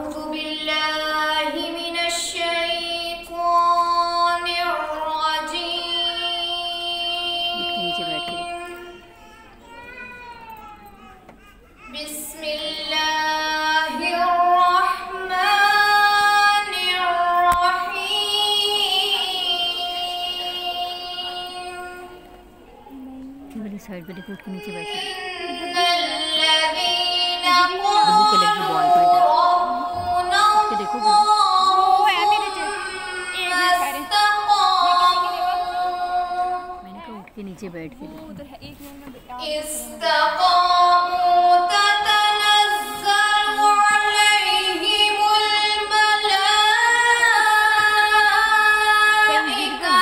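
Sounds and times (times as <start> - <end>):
person chanting recitation: 0.0 - 8.9, 22.9 - 37.1.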